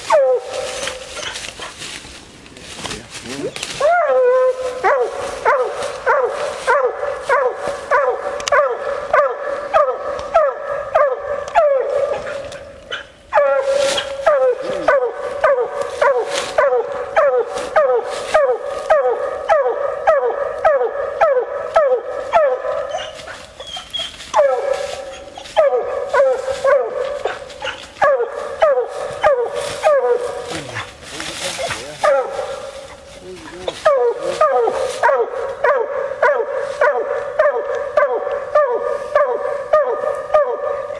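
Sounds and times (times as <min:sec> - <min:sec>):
dog barking: 0:03.8 - 0:30.9, 0:31.8 - 0:32.7, 0:33.8 - 0:40.9.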